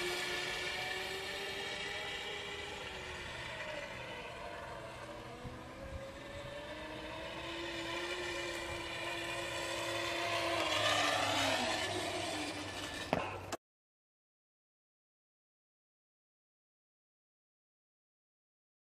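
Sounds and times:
electric scooter motor whining: 0.0 - 13.6.

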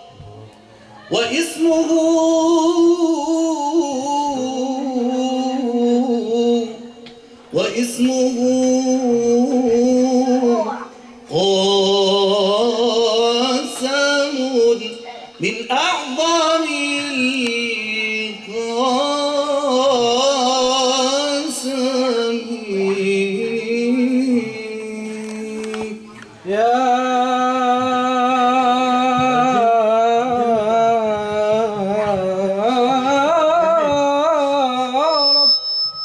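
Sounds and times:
man singing ornamented notes: 0.0 - 36.0.

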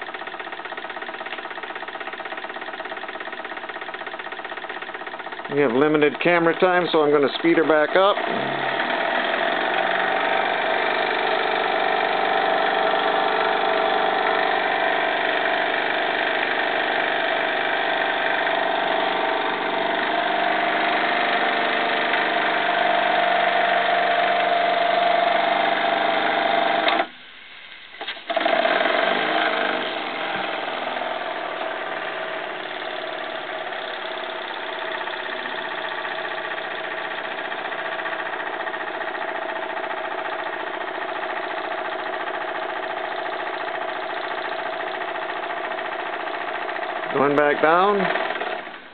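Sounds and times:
steam engine running fast: 0.0 - 27.1, 28.0 - 48.9
hoist mechanical whirring: 0.0 - 48.9.

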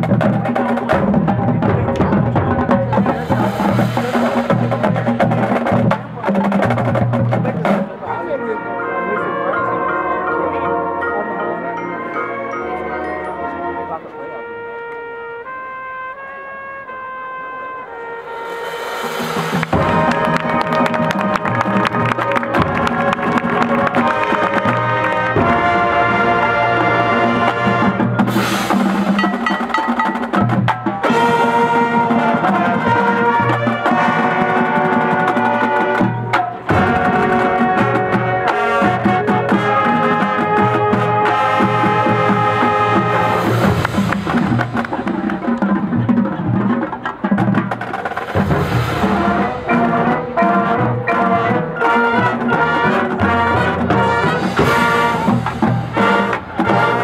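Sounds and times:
marching band brass melody: 0.0 - 57.0
marching percussion: 0.0 - 57.0.

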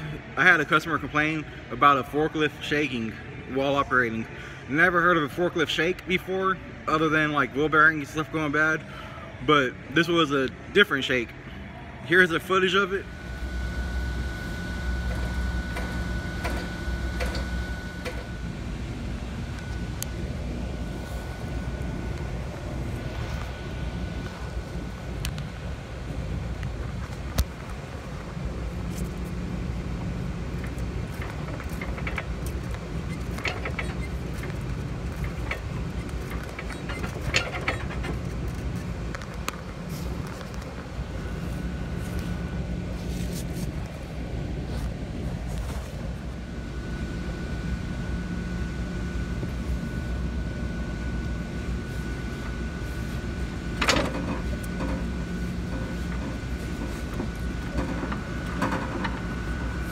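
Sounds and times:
faint high whine: 0.0 - 59.9
forklift engine idling: 12.4 - 27.0, 27.6 - 59.9.

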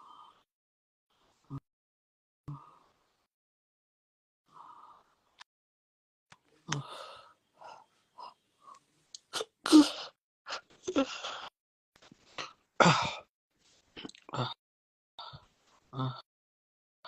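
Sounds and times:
man sneezing: 9.4 - 10.1.

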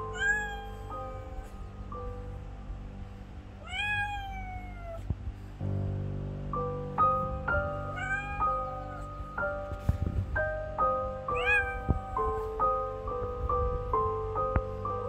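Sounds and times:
cat meowing: 0.0 - 1.8, 3.6 - 5.1, 7.6 - 9.4, 11.3 - 12.7
background music: 0.0 - 15.0.

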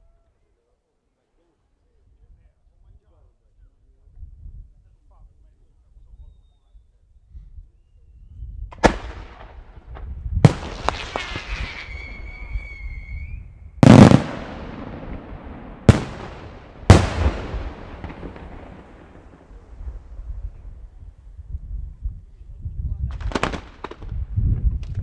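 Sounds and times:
firework booms: 8.7 - 20.6, 23.1 - 24.4
high steady whistle: 11.6 - 13.6
rumbling echo: 13.8 - 20.5.

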